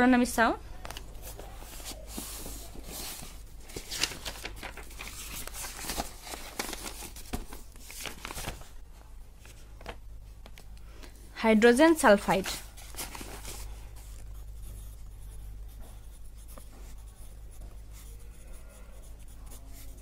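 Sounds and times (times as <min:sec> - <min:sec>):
book pages rustling: 0:00.8 - 0:11.1, 0:12.2 - 0:15.1.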